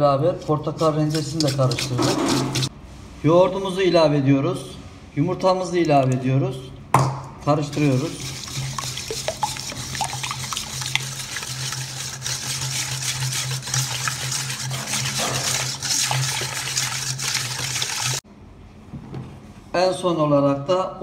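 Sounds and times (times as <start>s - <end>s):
whisk beating batter in metal bowl: 0.3s - 2.7s, 7.5s - 18.2s.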